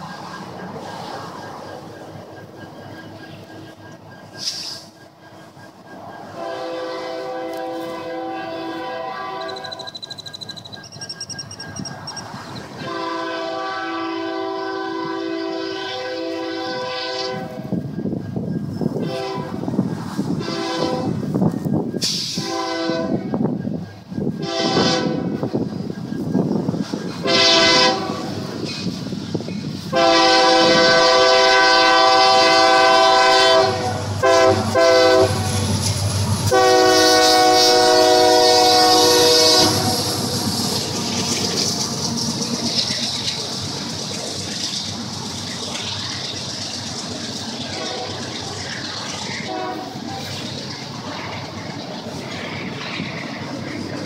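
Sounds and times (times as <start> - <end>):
freight train rumbling past: 0.0 - 54.0
locomotive air horn blasts: 6.4 - 9.9, 12.7 - 17.7, 19.0 - 19.7, 20.4 - 21.2, 22.1 - 23.3, 24.4 - 25.4, 27.2 - 28.3, 29.9 - 35.6, 36.5 - 40.2, 47.8 - 48.2, 49.5 - 50.0.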